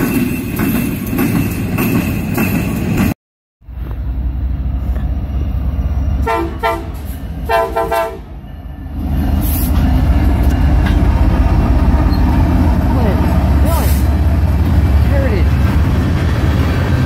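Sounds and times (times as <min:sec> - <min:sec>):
locomotive engine rumbling: 0:00.0 - 0:17.0
locomotive air horn blasts: 0:06.2 - 0:08.3.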